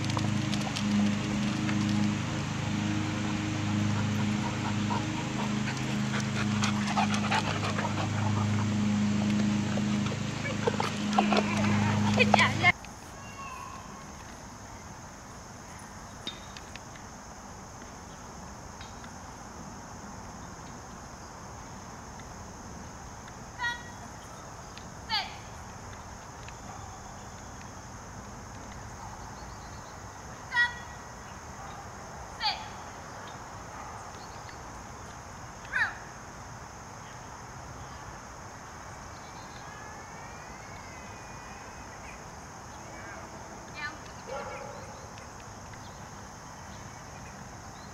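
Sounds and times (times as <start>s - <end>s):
faint wavering tone: 0.0s - 12.7s
high-pitched drone: 0.0s - 12.7s
high-pitched insect chorus: 0.0s - 47.9s.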